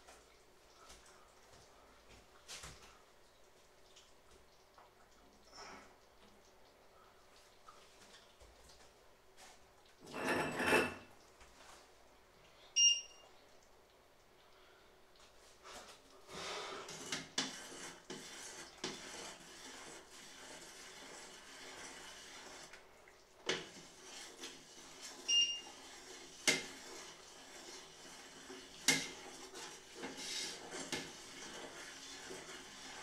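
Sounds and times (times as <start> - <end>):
spoon scraping in metal pot: 10.0 - 11.1, 16.8 - 22.8, 23.5 - 33.0.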